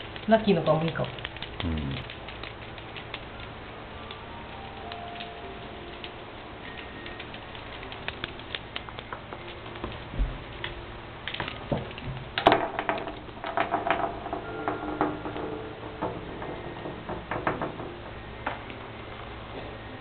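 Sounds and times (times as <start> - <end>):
light clicks and taps of toy: 0.0 - 12.1.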